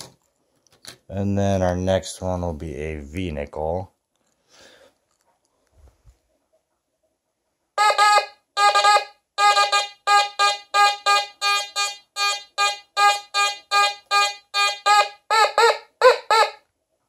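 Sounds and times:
metal detector beeps: 0:07.8 - 0:15.2.

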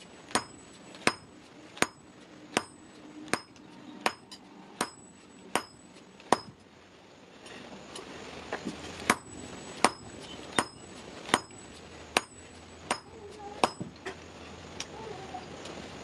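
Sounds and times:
hammer striking metal on anvil: 0:00.3 - 0:06.6, 0:09.1 - 0:11.6, 0:12.2 - 0:13.9.

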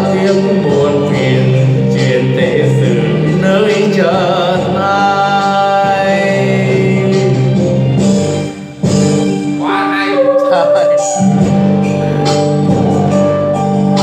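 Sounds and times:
man singing into a microphone: 0:00.0 - 0:07.6
backing music: 0:00.0 - 0:14.0.

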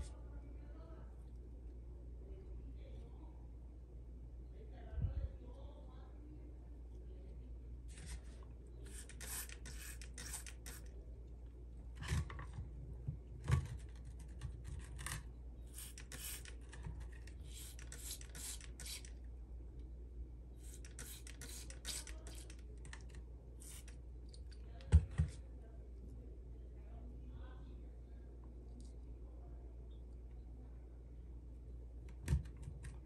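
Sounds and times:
spray bottle hissing: 0:08.9 - 0:10.8, 0:15.7 - 0:16.5, 0:17.5 - 0:19.1, 0:20.6 - 0:22.5.

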